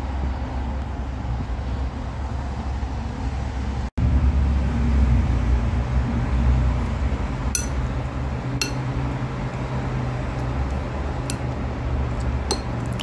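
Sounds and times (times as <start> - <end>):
steady low hum: 0.0 - 13.0
chopsticks clinking against bowl: 7.6 - 7.8, 8.6 - 8.8, 11.2 - 11.5, 12.4 - 13.0.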